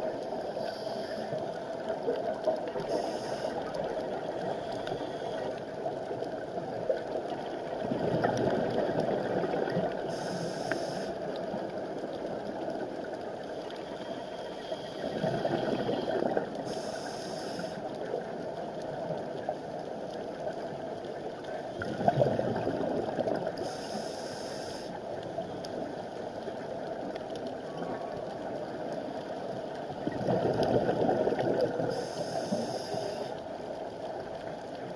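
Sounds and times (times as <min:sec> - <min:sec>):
hiss of inhaling through regulator: 0:00.4 - 0:01.7, 0:02.8 - 0:05.6, 0:10.0 - 0:11.2, 0:13.8 - 0:17.9, 0:23.6 - 0:25.0, 0:31.8 - 0:33.4
gurgling exhaled bubbles: 0:06.7 - 0:10.4, 0:15.0 - 0:16.6, 0:21.7 - 0:23.7, 0:29.9 - 0:33.1.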